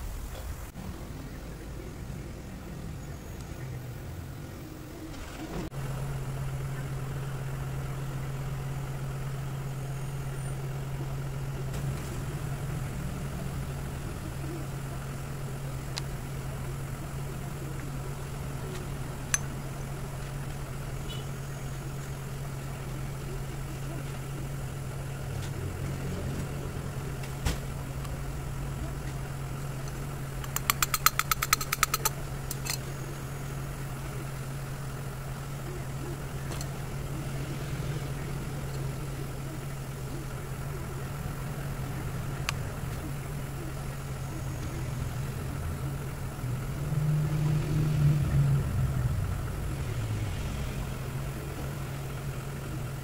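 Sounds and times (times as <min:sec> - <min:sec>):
low engine hum: 0:00.0 - 0:53.0
sharp metallic clicks: 0:18.6 - 0:20.6, 0:29.8 - 0:32.9.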